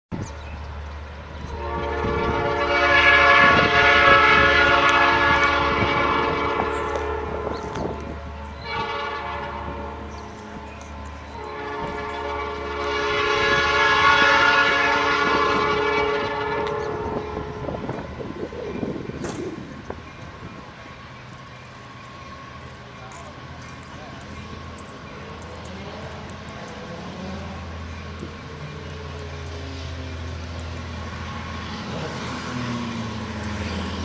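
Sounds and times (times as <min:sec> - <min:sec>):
locomotive air horn blasts: 0:01.4 - 0:23.1.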